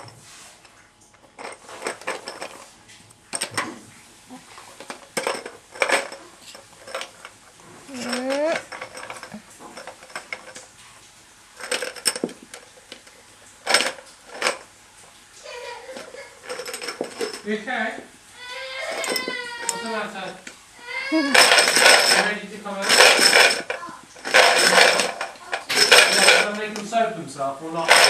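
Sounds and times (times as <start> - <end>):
plastic toy clattering: 4.8 - 7.3, 7.9 - 10.6, 11.6 - 12.7, 13.7 - 14.6, 16.0 - 17.5, 18.9 - 20.5, 21.2 - 27.0, 27.8 - 28.0
baby vocalising: 20.8 - 21.5.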